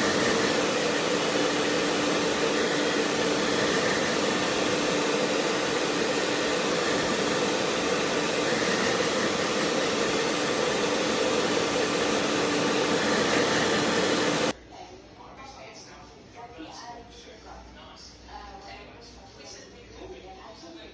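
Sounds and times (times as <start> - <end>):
blow dryer blowing: 0.0 - 14.6.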